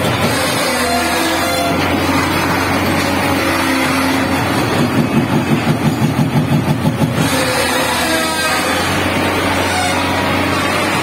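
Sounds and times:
excavator engine drone: 0.0s - 11.0s
rapid rhythmic pounding: 4.3s - 7.4s.

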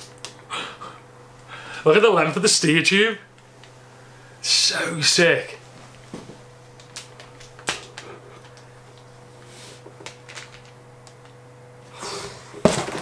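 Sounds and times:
plastic rustling: 5.7s - 11.4s.

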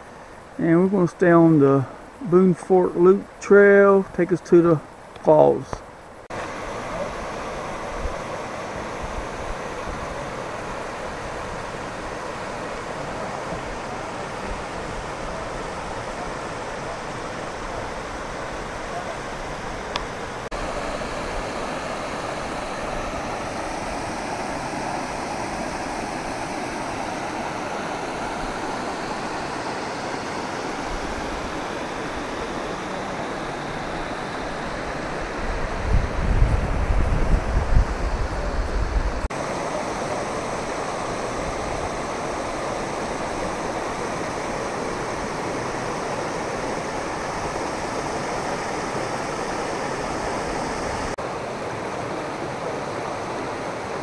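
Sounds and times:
mountain stream rushing over stones: 2.8s - 54.0s
wind buffeting microphone: 35.2s - 39.3s.

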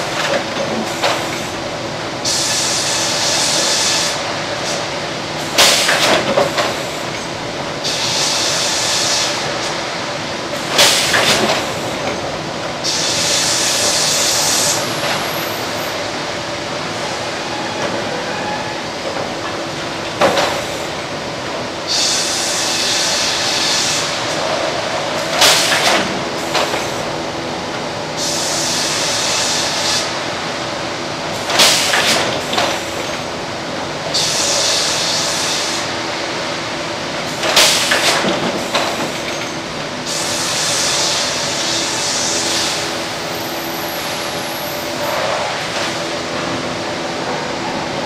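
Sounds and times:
machinery hum: 0.0s - 48.0s
pneumatic hiss: 2.2s - 7.2s, 12.8s - 16.0s, 21.9s - 24.2s, 25.1s - 27.1s, 28.2s - 30.1s, 31.4s - 33.2s, 34.1s - 35.9s, 37.4s - 46.1s.

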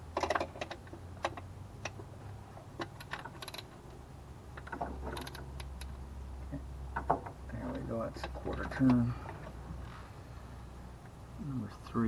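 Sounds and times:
socket ratchet clicking: 2.8s - 3.7s.

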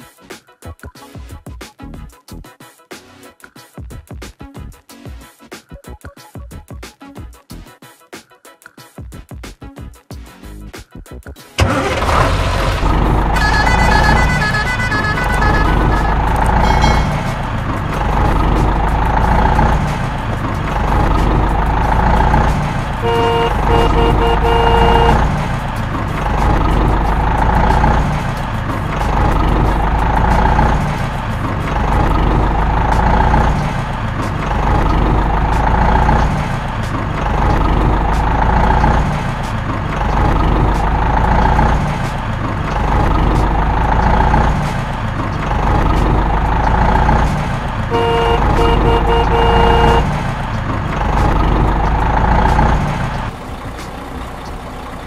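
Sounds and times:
diesel truck engine rumble: 11.6s - 55.0s
reversing alarm beeping: 13.4s - 17.6s.

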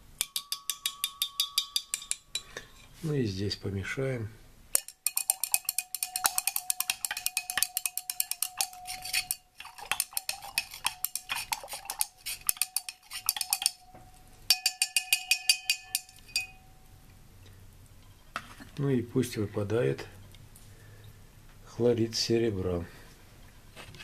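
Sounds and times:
glass ringing: 0.0s - 2.9s, 4.8s - 17.0s
glass rod clinking in beaker: 0.2s - 2.9s, 4.8s - 16.8s.

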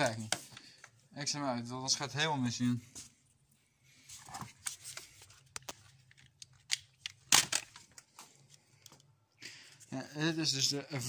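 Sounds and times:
objects clicking and rustling: 4.2s - 9.1s.

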